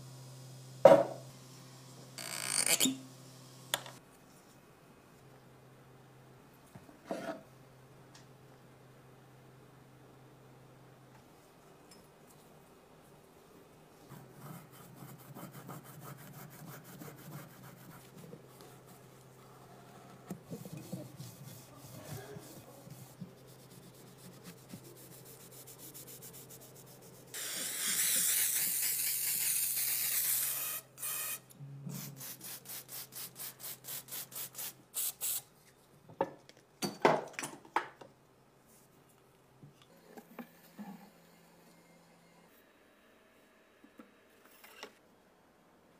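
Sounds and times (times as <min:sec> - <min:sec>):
cloth wiping metal: 0:20.4 - 0:27.3.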